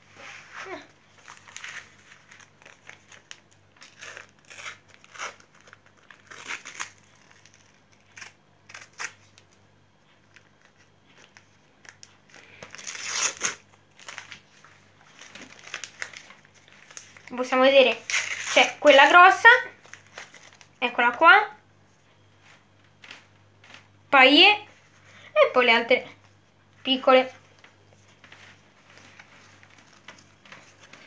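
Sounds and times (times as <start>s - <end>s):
paper wrappers tearing and crinkling: 0.2s - 9.5s, 10.4s - 20.8s, 27.6s - 31.0s.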